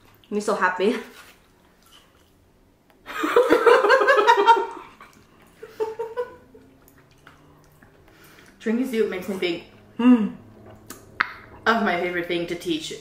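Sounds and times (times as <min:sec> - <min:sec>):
woman laughing: 0:03.1 - 0:06.6.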